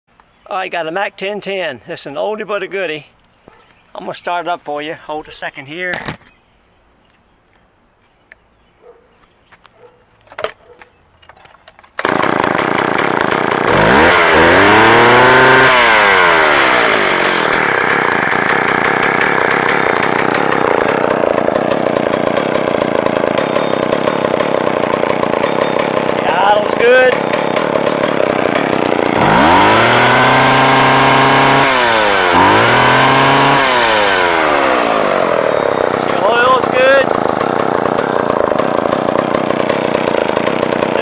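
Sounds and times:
chainsaw engine starting and idling: 11.7s - 41.0s.

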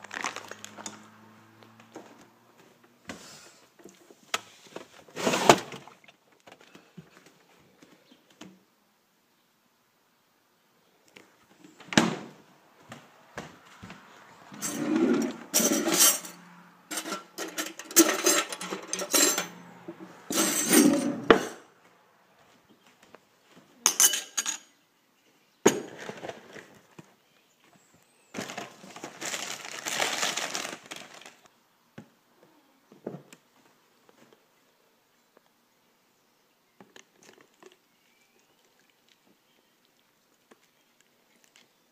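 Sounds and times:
cereal bag rustling: 0.0s - 1.1s, 28.3s - 31.5s
cutlery clattering in drawer: 14.6s - 19.6s, 20.3s - 21.6s, 23.9s - 24.7s.

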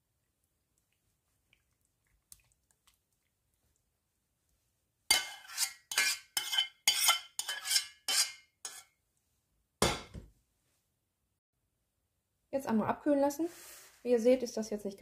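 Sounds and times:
metal spoon scraping saucepan: 5.1s - 8.9s.

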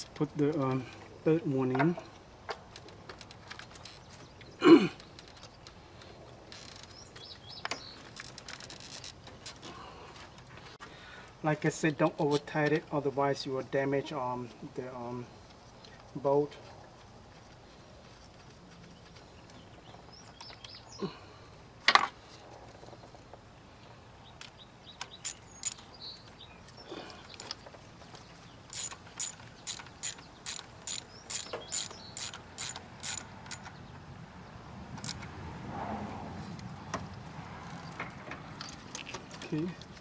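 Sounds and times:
ratchet wrench clicking: 25.0s - 25.9s, 28.7s - 33.7s, 35.0s - 35.2s.

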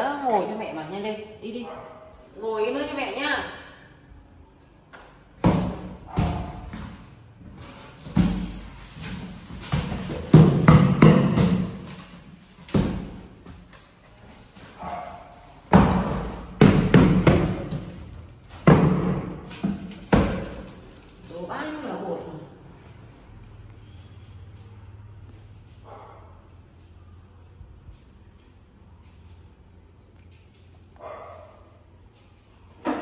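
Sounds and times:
cardboard boxes thudding on tiles: 5.4s - 21.3s.

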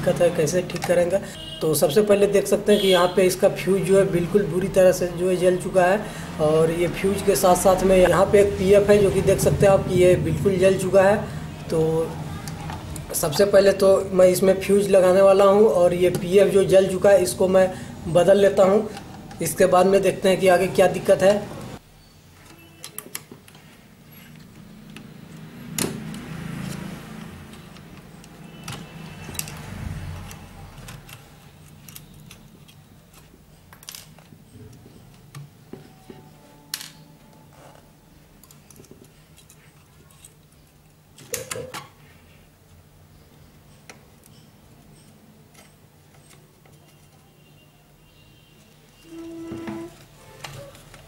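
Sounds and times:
circuit board handling rustle: 26.2s - 35.9s.

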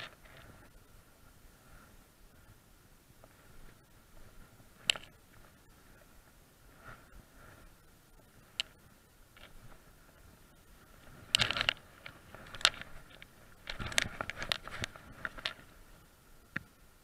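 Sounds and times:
fishing line clicks and rustles: 0.0s - 0.8s, 3.2s - 6.2s, 6.8s - 10.0s, 10.9s - 15.9s.

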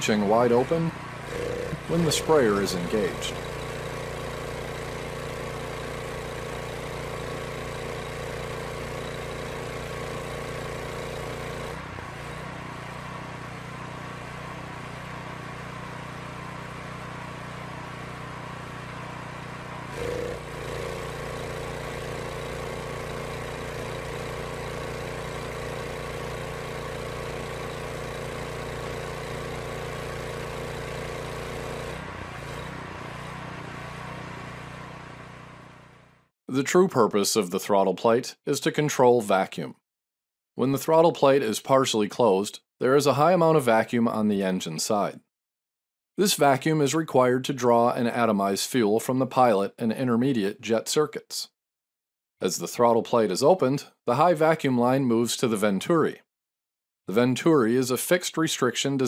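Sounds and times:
pressure washer engine running: 0.0s - 36.3s.

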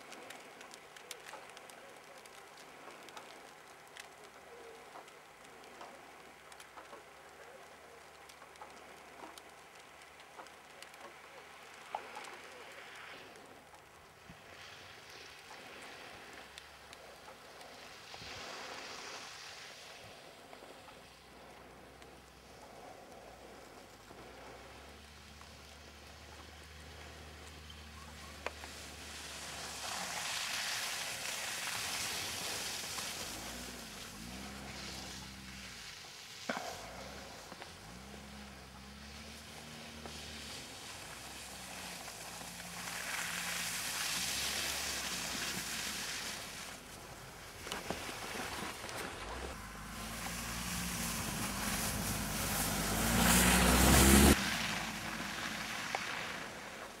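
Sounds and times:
tyres spraying snow: 0.0s - 57.0s
car engine revving: 49.3s - 55.9s.

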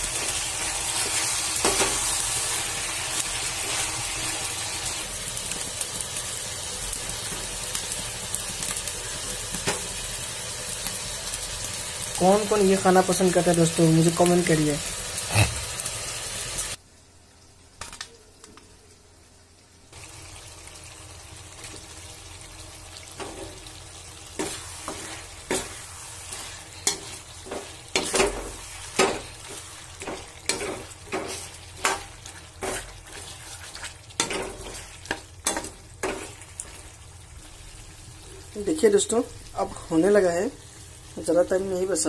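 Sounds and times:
food sizzling in a wok: 0.0s - 42.0s
metal spatula scraping a pan: 24.4s - 36.6s.

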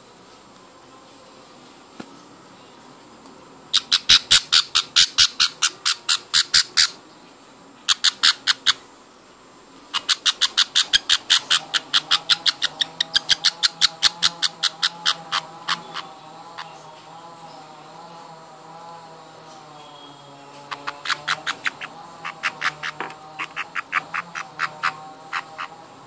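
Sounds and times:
budgerigar chick begging cheeps: 10.0s - 16.1s, 20.7s - 25.8s.

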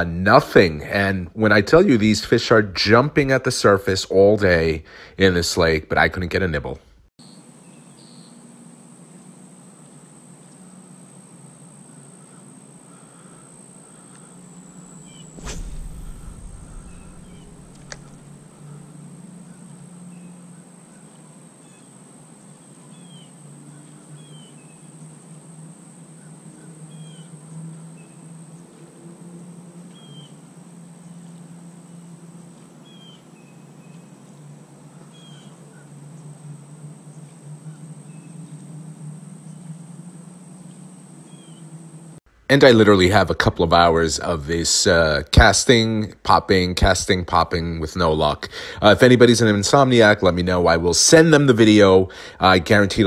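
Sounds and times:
bird chirps: 7.2s - 8.4s, 16.1s - 18.9s
low hum: 12.9s - 20.9s
high-pitched whine: 14.4s - 21.0s
thump with low rumble: 15.3s - 18.4s
sharp click: 15.4s - 18.2s.

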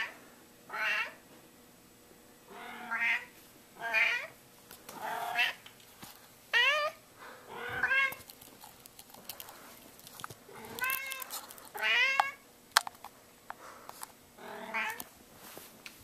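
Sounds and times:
cat meowing: 7.6s - 8.2s, 10.6s - 12.4s.

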